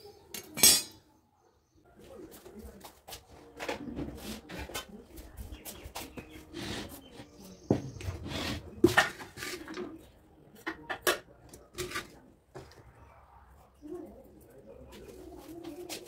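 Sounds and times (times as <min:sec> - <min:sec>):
pot and lid clinking: 0:00.6 - 0:01.0
doves cooing: 0:12.6 - 0:16.0.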